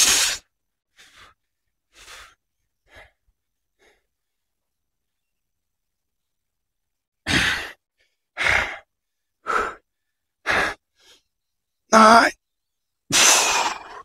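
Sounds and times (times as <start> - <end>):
man breathing out hard: 7.3 - 11.3, 13.1 - 14.0.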